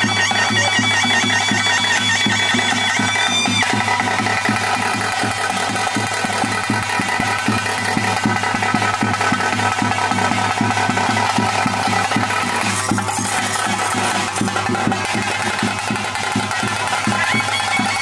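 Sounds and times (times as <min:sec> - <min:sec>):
held reed pipe tone: 0:00.0 - 0:05.5
fast even drumming: 0:00.0 - 0:18.0.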